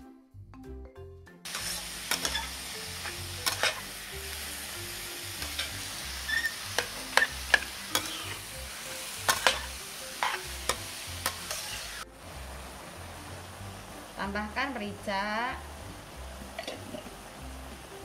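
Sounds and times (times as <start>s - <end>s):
metal spatula scraping a pan: 1.5s - 3.9s, 5.4s - 12.0s
meat sizzling in a wok: 1.5s - 18.0s.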